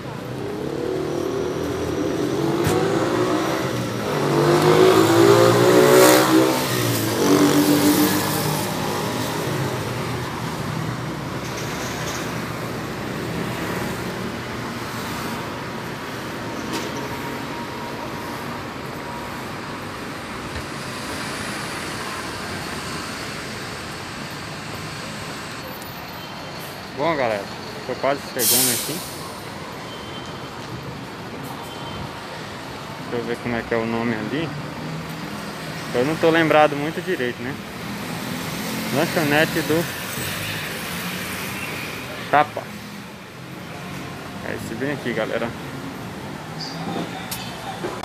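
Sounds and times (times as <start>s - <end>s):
steady traffic rumble: 0.0s - 48.0s
vehicle engine revving past: 0.2s - 10.9s.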